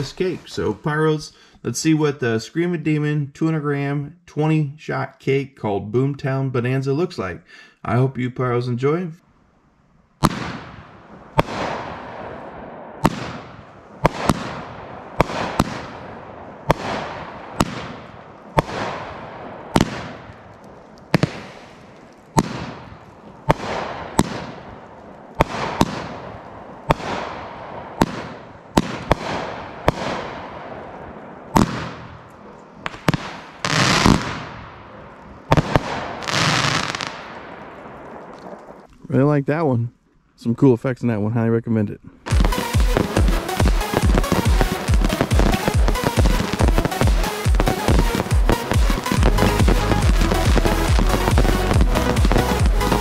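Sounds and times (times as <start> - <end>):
firework bangs with hiss: 10.2 - 20.5, 21.1 - 24.8, 25.4 - 30.8, 31.5 - 32.2, 32.8 - 34.7, 35.5 - 38.6, 42.3 - 53.0.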